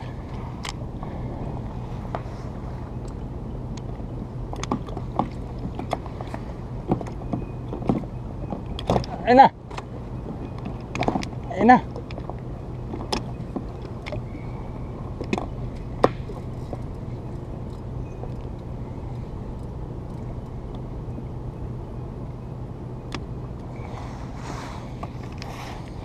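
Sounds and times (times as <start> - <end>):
low engine hum: 0.0 - 26.0
rustle: 23.6 - 26.0.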